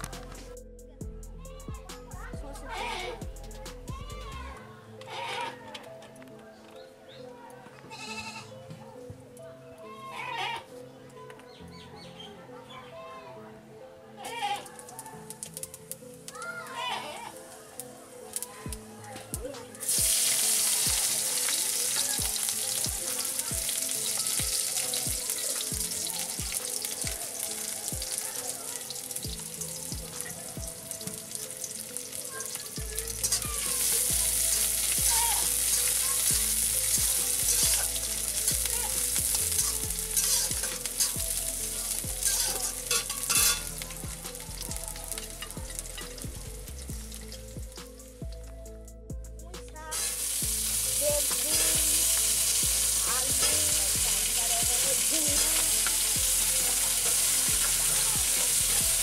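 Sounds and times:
onions sizzling in oil: 19.7 - 47.4, 49.9 - 59.0
metal spatula scraping pan: 40.2 - 41.2.

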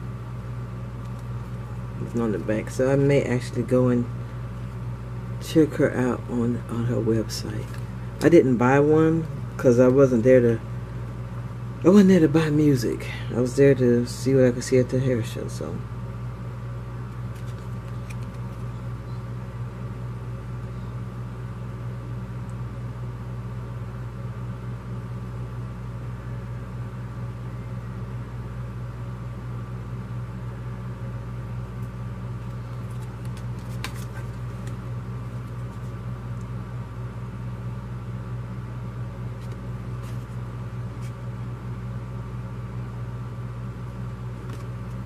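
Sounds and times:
paper cards clicking: 17.2 - 18.7, 32.4 - 36.0, 44.4 - 45.0.

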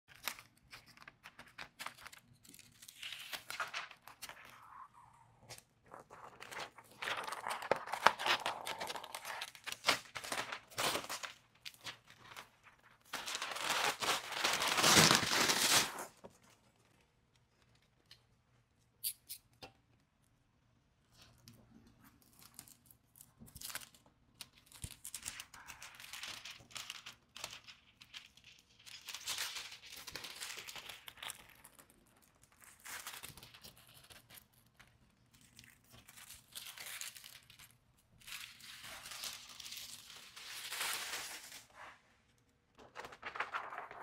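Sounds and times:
plastic film crinkling: 0.1 - 4.8, 5.5 - 16.2, 24.7 - 41.9, 42.8 - 44.0.

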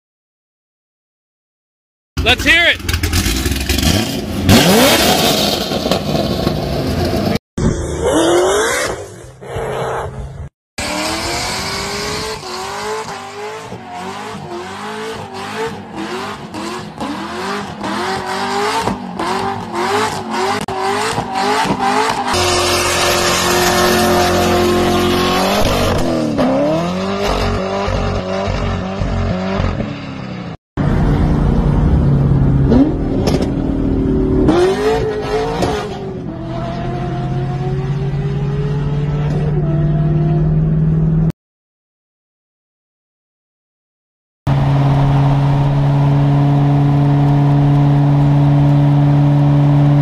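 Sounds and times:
car accelerating hard: 2.8 - 29.9, 30.8 - 41.3
car engine revving: 2.8 - 41.3.

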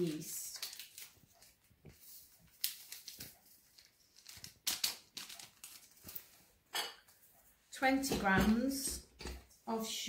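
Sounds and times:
yeast sachet tearing and crinkling: 0.1 - 1.5, 2.5 - 6.2.

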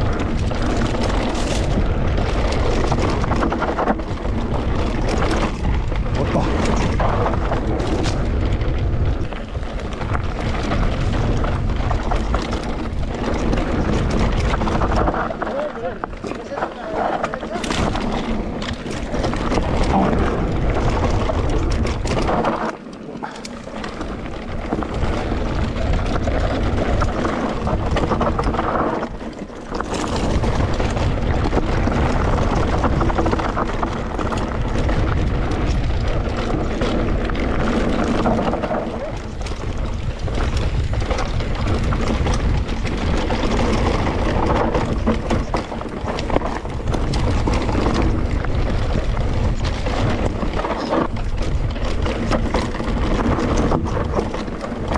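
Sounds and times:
bike rattling: 0.0 - 54.9
tyres rolling over gravel: 0.0 - 54.9
wind over microphone: 0.0 - 54.9.

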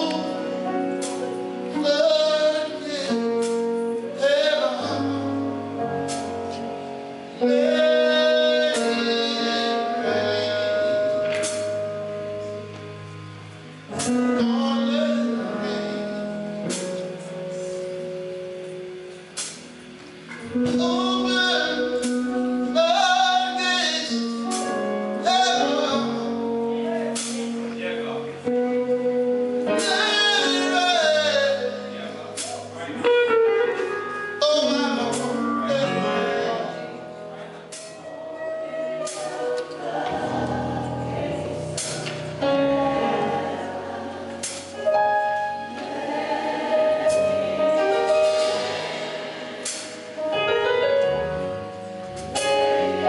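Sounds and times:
man singing into a microphone: 0.0 - 5.6, 7.4 - 11.8, 14.0 - 16.4, 20.5 - 27.7, 29.7 - 32.8, 34.4 - 37.1
sustained keyboard chords: 0.0 - 53.0.

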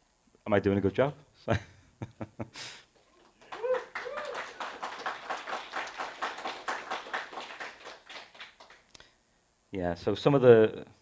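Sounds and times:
audience applauding: 3.0 - 8.8.

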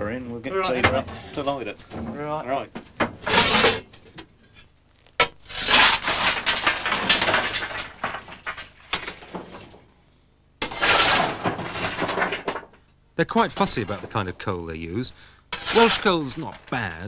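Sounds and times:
coal lumps crunching and rattling: 3.0 - 9.9, 10.6 - 17.0
shovel scraping into coal: 3.2 - 3.8, 4.6 - 7.0, 10.6 - 12.0, 15.5 - 16.6.

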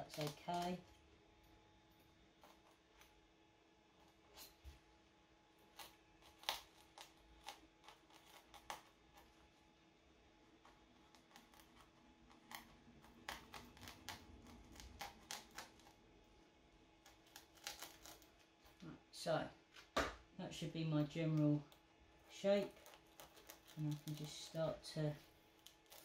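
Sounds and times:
craft knife scoring foam: 10.6 - 16.0, 17.0 - 18.8.

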